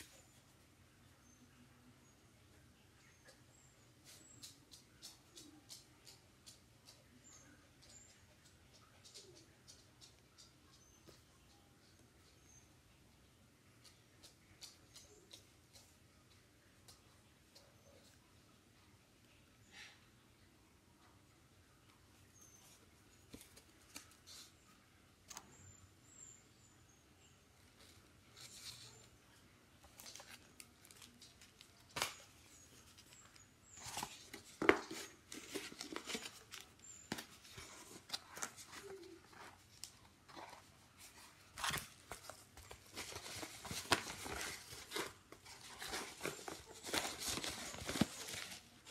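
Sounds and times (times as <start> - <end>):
cardboard rustling and scraping: 33.1 - 48.9.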